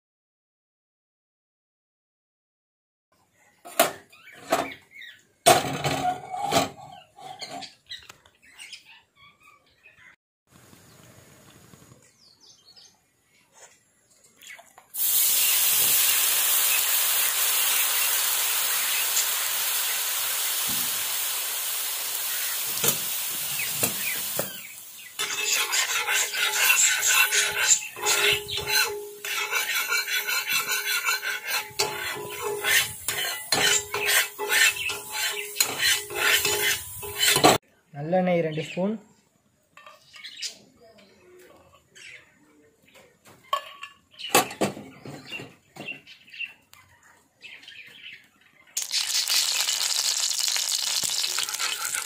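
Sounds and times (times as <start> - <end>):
liquid sizzling on a hot pan: 15.0 - 37.6, 48.8 - 52.0
spatula scraping and tapping pan: 23.6 - 37.6, 51.1 - 52.0.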